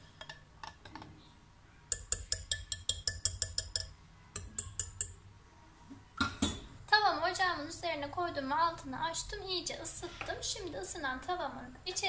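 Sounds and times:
whisk clinking against glass bowl: 1.9 - 5.2.

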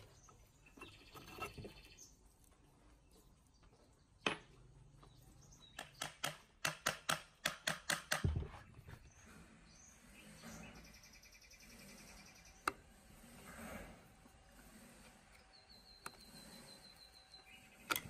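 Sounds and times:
faint scraping: 8.5 - 18.0.

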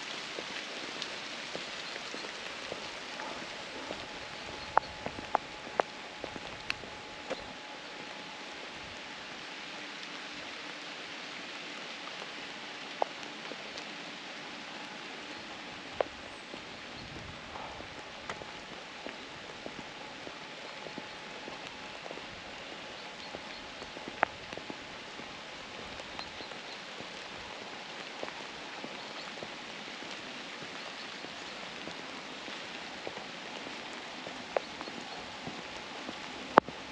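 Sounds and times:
steady rain: 0.0 - 36.9.

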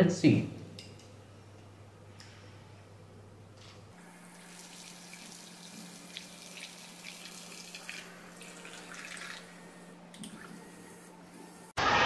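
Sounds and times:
water pump humming: 2.9 - 11.2
water trickling and dripping: 4.3 - 9.5.

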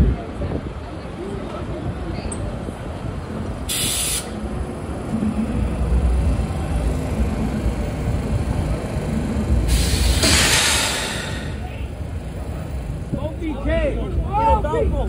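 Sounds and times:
subway train rumbling: 0.0 - 15.0
air hiss: 3.7 - 4.4, 9.7 - 11.7.

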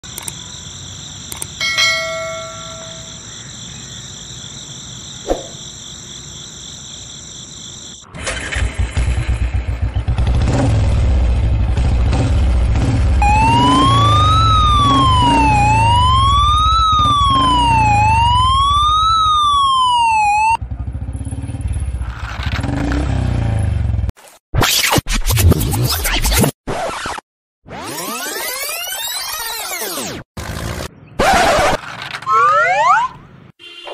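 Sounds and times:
electronic toy siren wailing: 13.2 - 20.6, 32.2 - 33.2.

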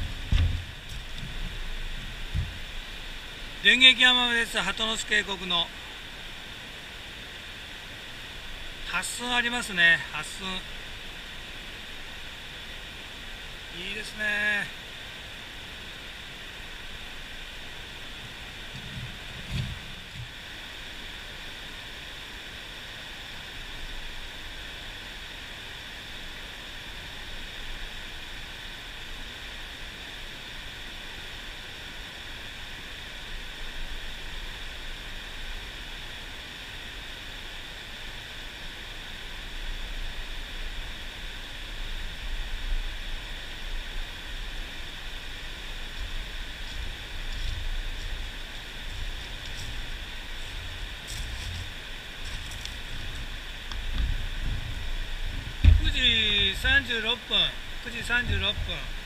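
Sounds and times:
low buffeting rumble: 0.0 - 14.4, 38.7 - 59.0
stream water rushing: 0.0 - 59.0.

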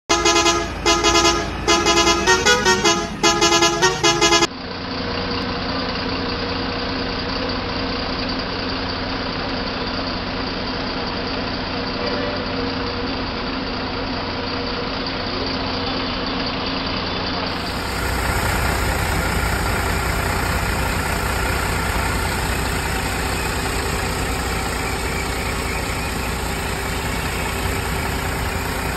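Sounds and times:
pulsed horn toots: 0.1 - 4.5, 17.5 - 28.9
bus diesel engine idling: 0.1 - 28.9.

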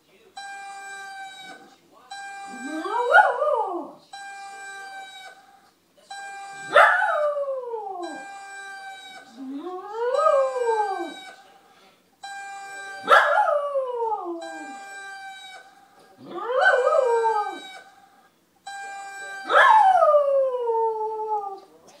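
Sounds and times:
dog howling: 2.5 - 4.0, 6.6 - 11.4, 12.8 - 18.0, 19.3 - 21.8.

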